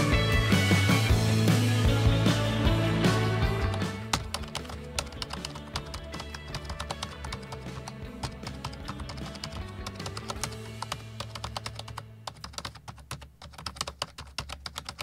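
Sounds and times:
background music: 0.0s - 13.4s
keyboard typing clicks: 3.6s - 15.0s.

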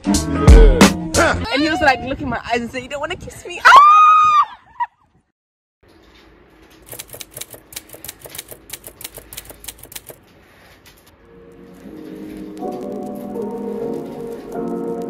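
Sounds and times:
typewriter key clicks: 6.8s - 10.2s.

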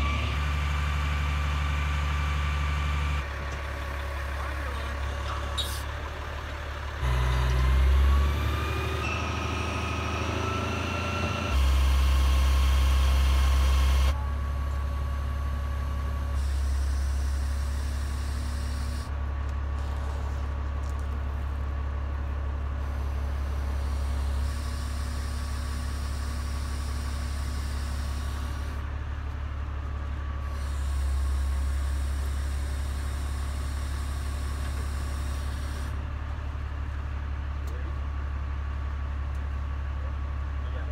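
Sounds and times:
diesel engine running: 0.0s - 40.9s
hydraulic whine rising: 6.9s - 19.1s.

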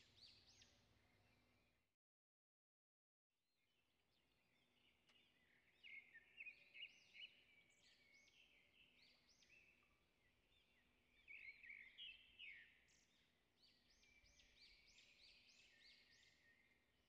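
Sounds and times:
faint birdsong: 0.0s - 1.9s, 3.5s - 17.0s.

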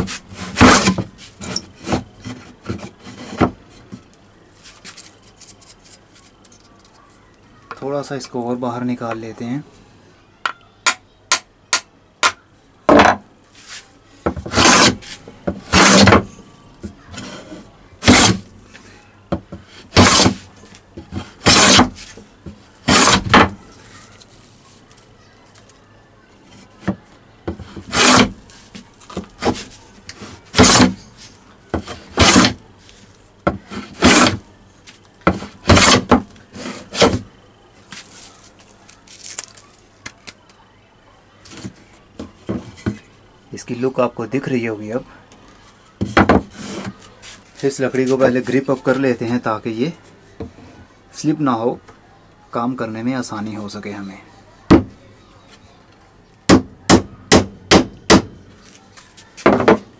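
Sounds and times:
hand plane rasping on wood: 0.0s - 3.4s, 14.5s - 15.1s, 15.7s - 16.2s, 17.2s - 18.4s, 20.0s - 20.4s, 21.2s - 21.9s, 22.9s - 23.3s, 27.6s - 28.3s, 30.5s - 30.9s, 31.8s - 32.6s, 33.7s - 34.4s, 35.3s - 37.2s.

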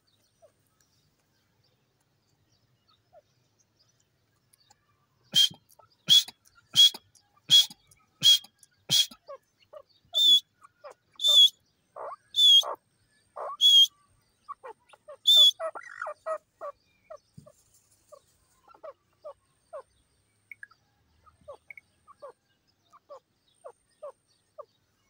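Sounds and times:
shrill bird calls: 5.2s - 17.2s.

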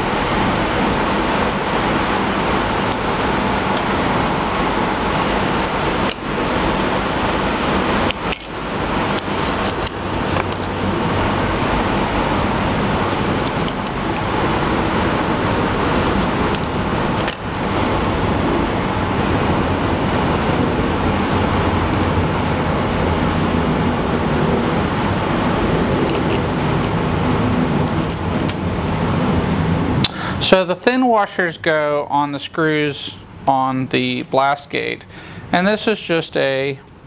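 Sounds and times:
steady rushing noise: 0.0s - 30.9s
small metal screws clinking: 8.0s - 10.6s, 16.2s - 19.0s, 27.8s - 28.5s, 29.4s - 30.1s.

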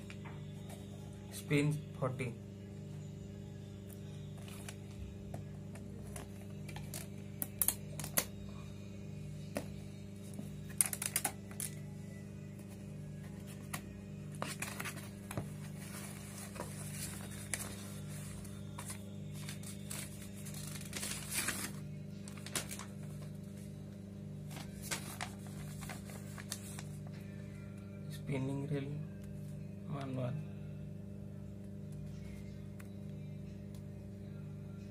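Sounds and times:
steady low hum: 0.0s - 34.9s
paper rustling: 14.4s - 23.3s, 24.5s - 27.0s.

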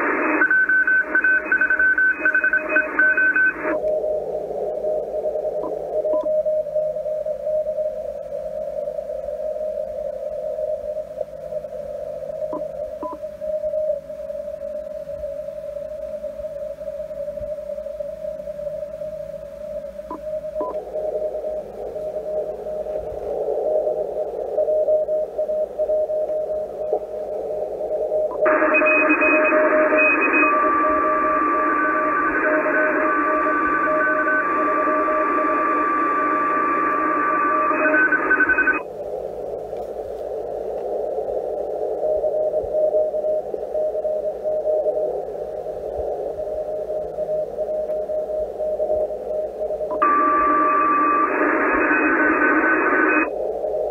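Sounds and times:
morse code tone: 0.0s - 3.8s, 28.3s - 38.8s, 49.9s - 53.3s
radio receiver hiss: 0.0s - 53.9s
radio signal tones: 0.0s - 53.9s.

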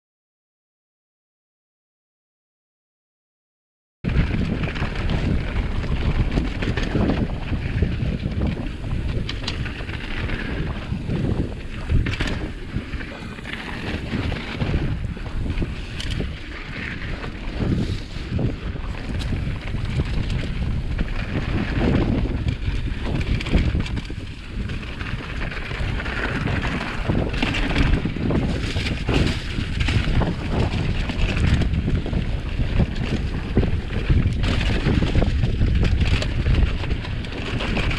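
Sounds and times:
wind buffeting microphone: 4.0s - 37.9s
bike knocks and clicks: 4.1s - 17.7s
tyres rolling on dirt and leaves: 4.1s - 37.9s.

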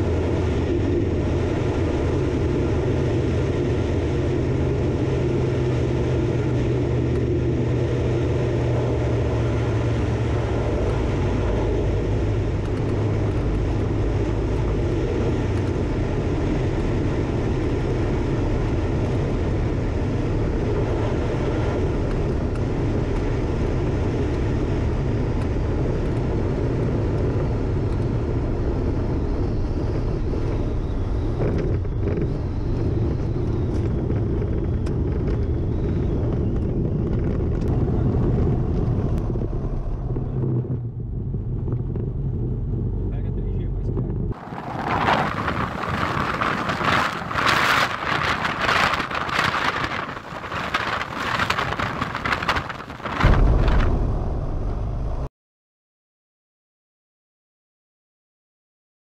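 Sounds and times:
aircraft engine and propeller drone: 0.0s - 55.3s
airflow noise: 42.6s - 55.3s.

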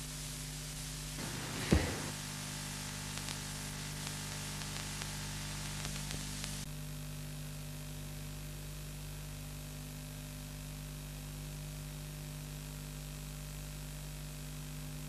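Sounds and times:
steady hiss with low hum: 0.0s - 6.7s
faint clicks: 2.9s - 6.7s.

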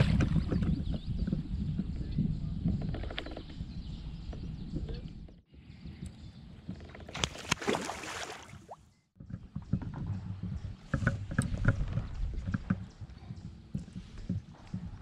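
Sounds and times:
fish splashing in water: 7.1s - 8.8s
knocks and thumps on paddleboard: 9.2s - 14.9s.

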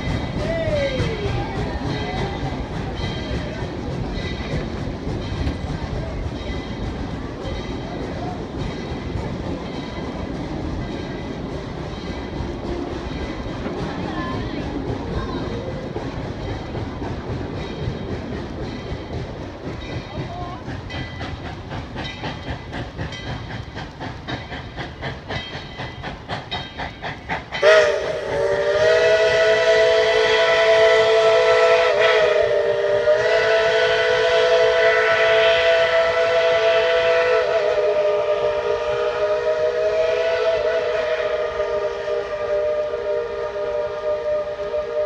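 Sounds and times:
steam locomotive rhythmic chuffing: 0.0s - 45.0s
chime steam whistle: 27.6s - 45.0s.

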